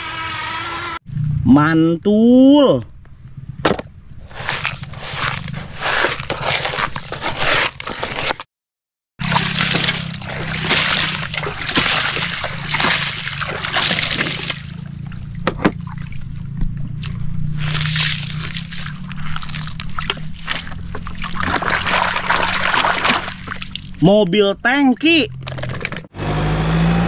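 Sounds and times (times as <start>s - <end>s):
steady low hum: 9.2s - 24.0s
water splashing and sloshing: 9.2s - 24.0s.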